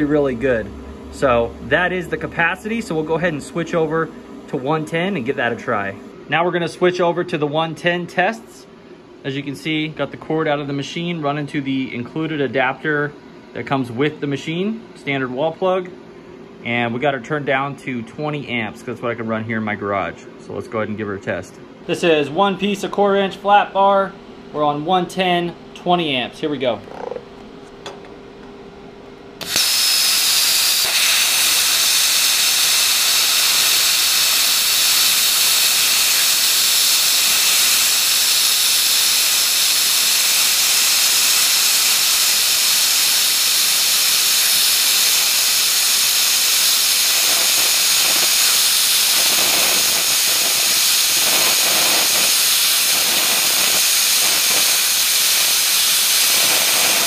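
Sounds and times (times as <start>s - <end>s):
plasma cutter arc striking: 29.4s - 57.0s
plasma cutter hissing: 29.4s - 57.0s.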